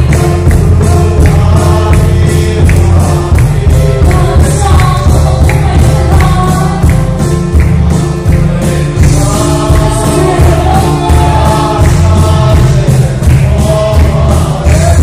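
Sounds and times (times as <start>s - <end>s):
church drums beating: 0.0s - 15.0s
congregation singing a hymn: 0.0s - 15.0s.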